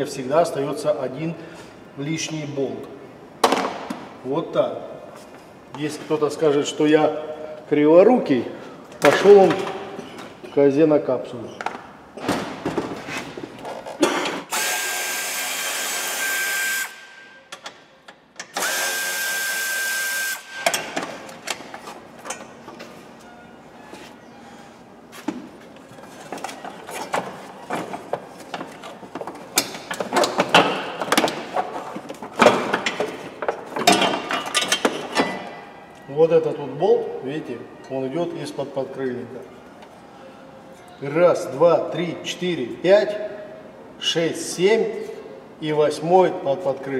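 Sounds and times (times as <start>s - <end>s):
power drill running: 14.5s - 17.0s, 18.5s - 20.6s.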